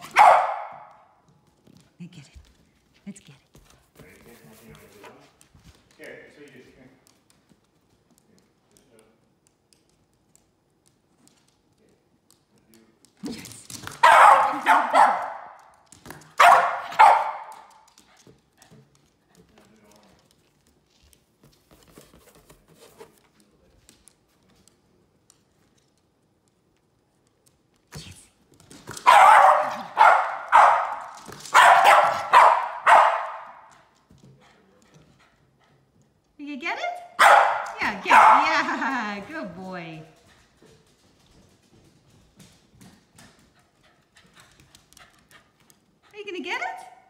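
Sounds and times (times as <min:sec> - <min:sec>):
dog barking: 0:00.0 - 0:01.1, 0:14.0 - 0:15.7, 0:16.3 - 0:17.9, 0:29.0 - 0:33.7, 0:37.1 - 0:38.5.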